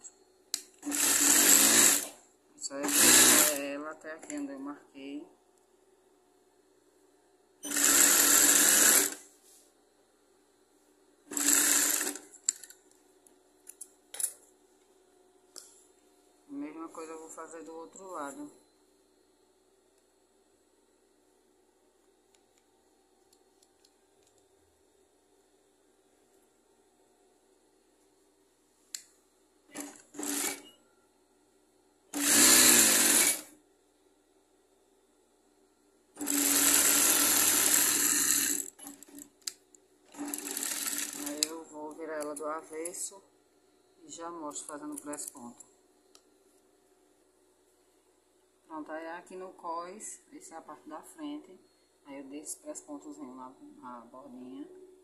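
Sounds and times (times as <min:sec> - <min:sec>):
sewing machine stitching: 0:00.8 - 0:02.2, 0:02.8 - 0:03.7, 0:07.6 - 0:09.2, 0:11.3 - 0:12.4, 0:29.7 - 0:30.7, 0:32.1 - 0:33.5, 0:36.2 - 0:39.3, 0:40.1 - 0:41.6.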